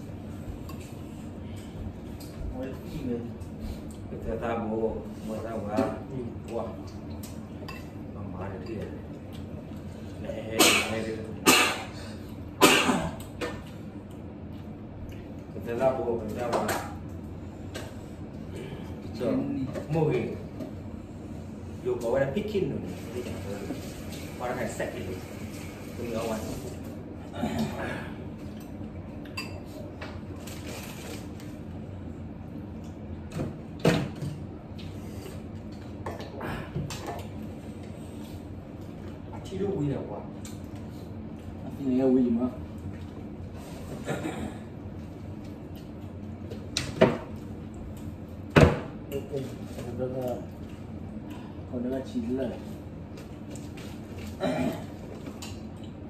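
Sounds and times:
man coughing: 10.6s - 13.2s, 27.3s - 28.2s, 44.0s - 44.7s, 54.4s - 54.9s.

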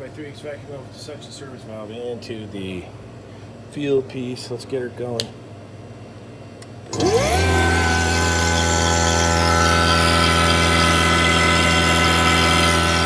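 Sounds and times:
vacuum pump motor running: 6.6s - 13.0s.

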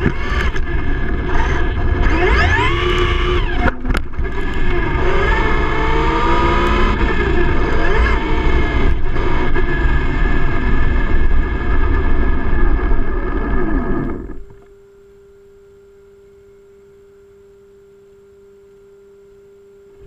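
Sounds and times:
tyre and drivetrain noise: 0.0s - 14.6s
rc truck motor whine: 0.0s - 14.8s
faint steady hum: 0.0s - 20.0s.

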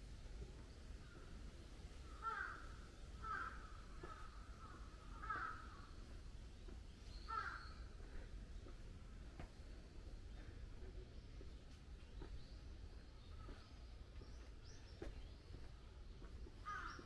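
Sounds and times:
faint outdoor background: 0.0s - 17.0s
crow cawing: 2.0s - 5.9s, 7.3s - 7.7s, 16.6s - 17.0s.

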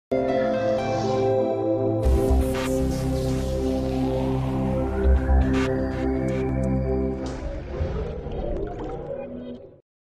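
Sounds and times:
sustained intro music chords: 0.4s - 7.7s.

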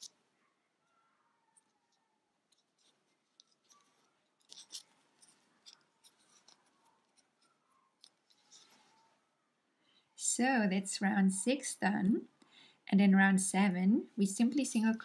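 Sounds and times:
crochet hook rustling and clicking: 0.0s - 0.2s, 1.6s - 9.0s.

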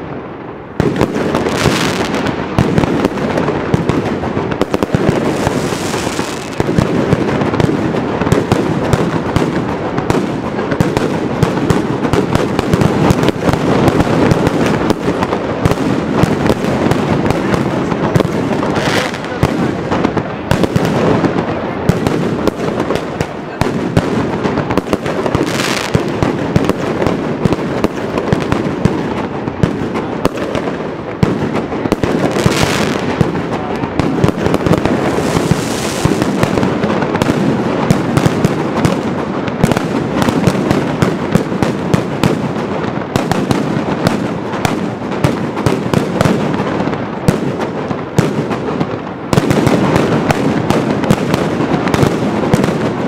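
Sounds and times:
firecrackers rapid bangs: 0.0s - 53.0s.

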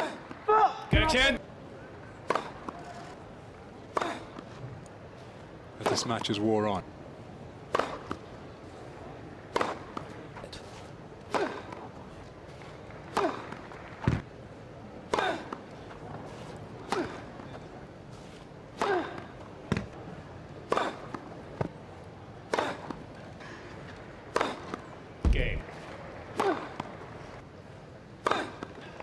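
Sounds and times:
steady background hum: 0.0s - 29.0s
weak thuds: 25.2s - 25.6s.

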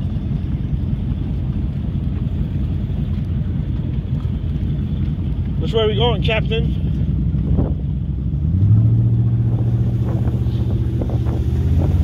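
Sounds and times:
speedboat engine throttling up: 0.0s - 12.0s.

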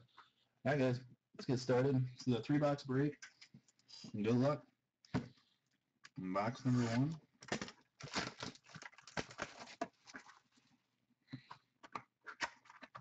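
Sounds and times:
card wrapping tearing and crinkling: 6.7s - 10.5s.

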